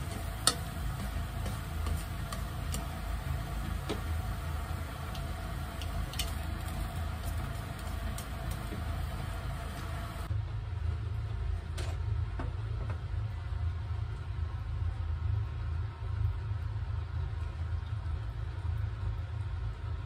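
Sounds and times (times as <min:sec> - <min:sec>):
chopsticks clicking against pan: 0:00.0 - 0:03.1, 0:05.1 - 0:08.8
shrimp sizzling in a frying pan: 0:00.0 - 0:10.3
steady low hum: 0:00.0 - 0:20.0.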